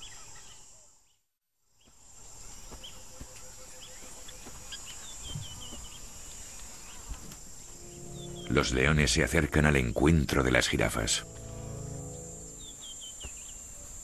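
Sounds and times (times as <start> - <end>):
high insect drone: 2.0 - 14.0.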